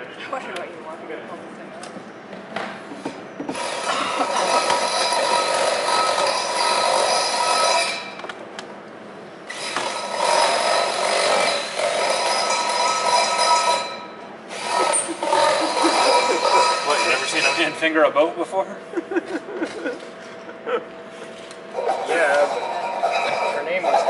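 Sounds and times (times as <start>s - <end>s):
power tool whining: 9.5s - 17.7s.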